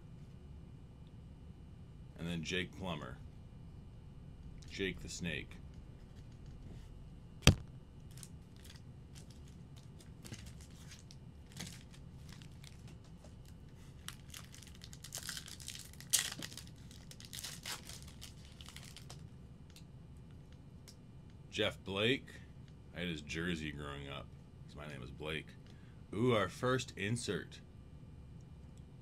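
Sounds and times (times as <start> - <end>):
card wrapper crinkling and tearing: 7.5 - 13.0, 14.0 - 19.2.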